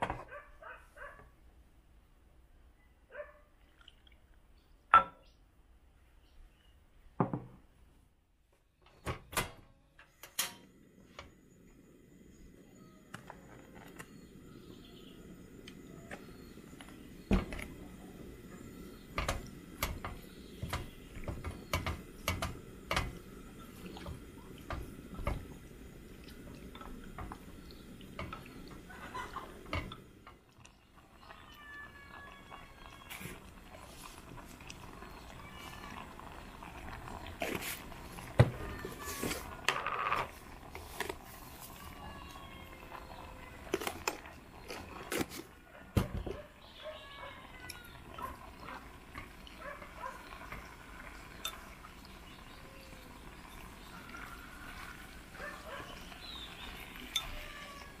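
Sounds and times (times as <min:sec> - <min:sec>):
gas stove burner rushing: 0:13.2 - 0:30.4.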